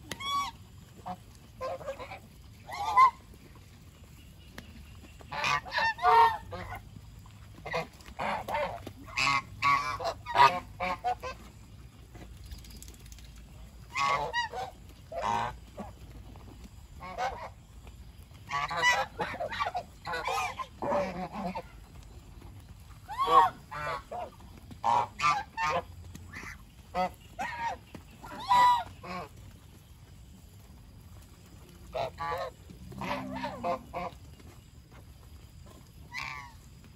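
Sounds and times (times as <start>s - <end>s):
geese honking: 0.0s - 4.4s, 5.0s - 6.9s, 7.6s - 11.7s, 13.9s - 16.0s, 17.0s - 17.6s, 18.4s - 21.9s, 23.0s - 29.4s, 31.9s - 34.2s, 36.0s - 36.6s.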